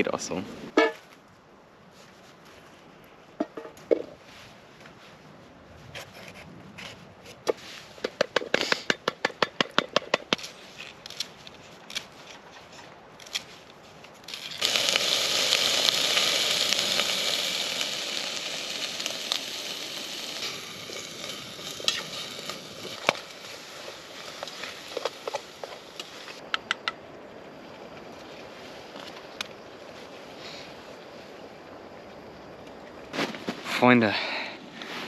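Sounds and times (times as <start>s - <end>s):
vegetables sizzling in a pan: 14.3s - 26.4s.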